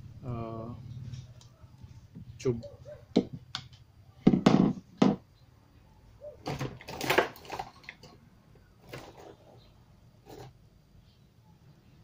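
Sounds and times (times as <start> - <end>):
scraping and rustling handling noise: 6.4 - 8.2, 8.8 - 10.6.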